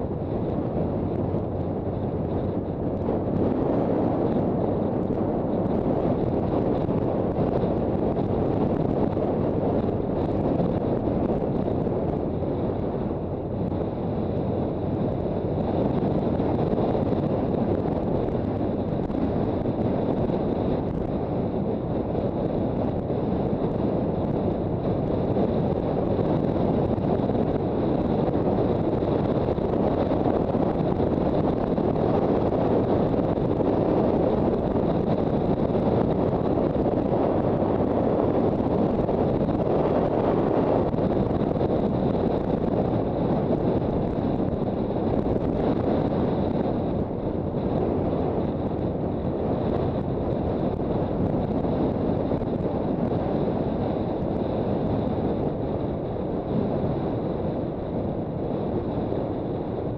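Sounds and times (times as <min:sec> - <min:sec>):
road noise: 0:00.0 - 0:59.9
wind rush on microphone: 0:00.0 - 0:59.9.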